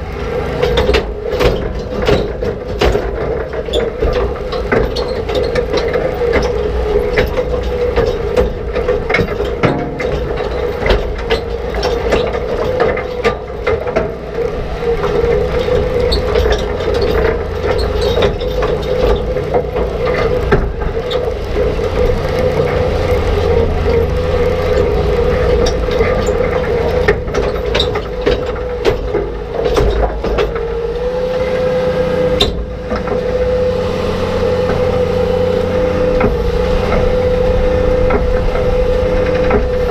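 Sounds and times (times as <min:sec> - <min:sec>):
low tractor rumble: 0:00.0 - 0:39.9
mechanical whine: 0:00.0 - 0:39.9
rocks clattering against steel: 0:00.7 - 0:22.6.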